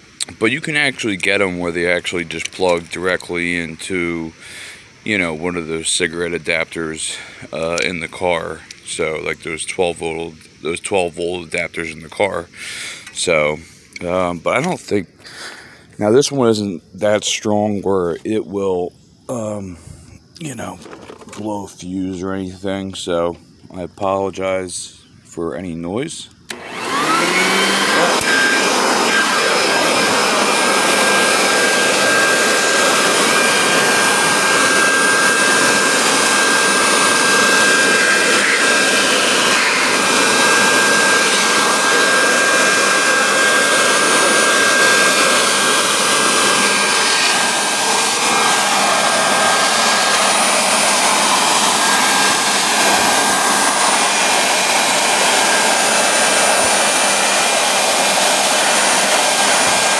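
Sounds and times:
leaf blower motor whine: 19.4 - 21.6, 26.4 - 59.9
rushing air: 26.6 - 59.9.

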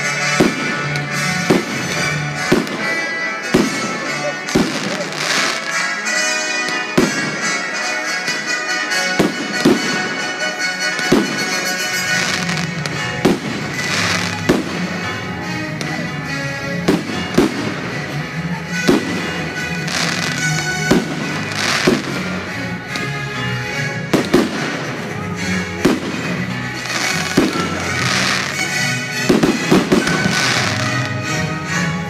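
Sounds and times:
music: 0.0 - 32.0.

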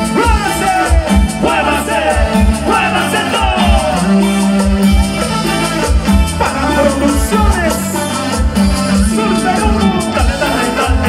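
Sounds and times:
bass: 0.0 - 11.0
drums: 0.0 - 11.0
person singing: 0.0 - 11.0.

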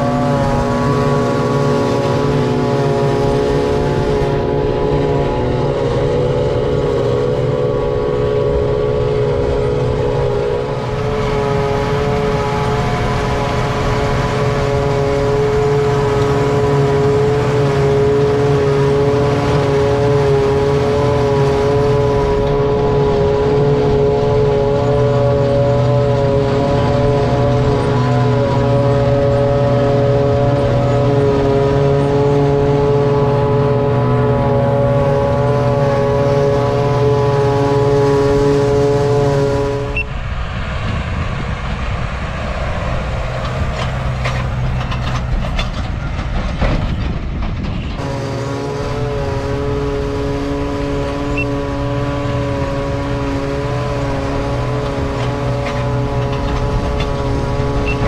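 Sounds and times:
forage harvester whine: 0.0 - 58.0
tractor rumble: 0.0 - 58.0.

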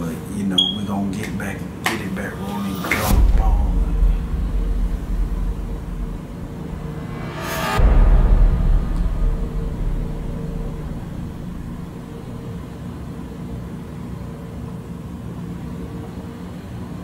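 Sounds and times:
faint hum: 0.0 - 17.0
low rumble: 2.5 - 13.8.

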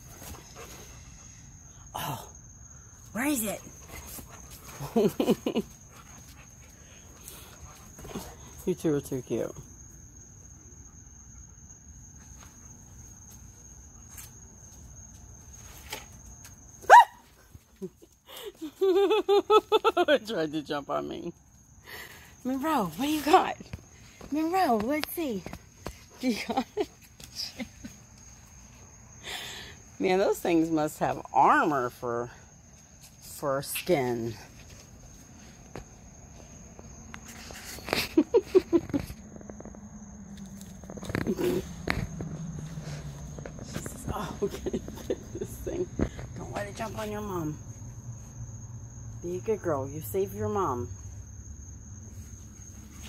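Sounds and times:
insects trilling: 0.0 - 53.0.

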